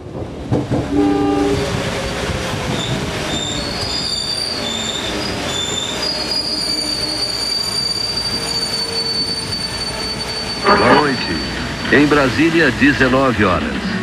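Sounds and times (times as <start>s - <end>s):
train rumbling on tracks: 0.0s - 14.0s
train wheels squealing: 2.7s - 12.5s.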